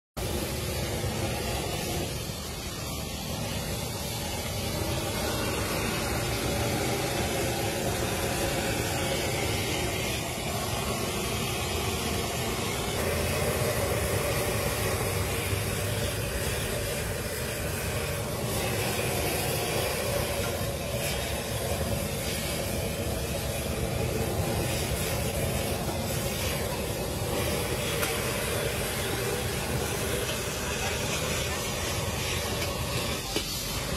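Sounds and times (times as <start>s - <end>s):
food frying in a wok: 0.2s - 33.9s
gas burner hiss and rumble: 0.2s - 33.9s.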